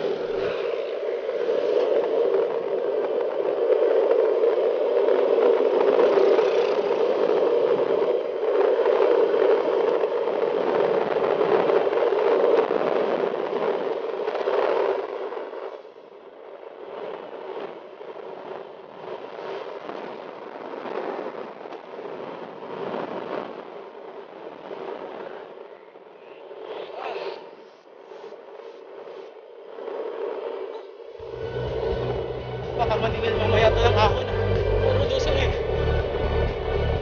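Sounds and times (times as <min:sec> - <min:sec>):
air rushing past: 0:00.0 - 0:11.0, 0:26.2 - 0:37.0
bicycle tyres on road: 0:00.0 - 0:37.0.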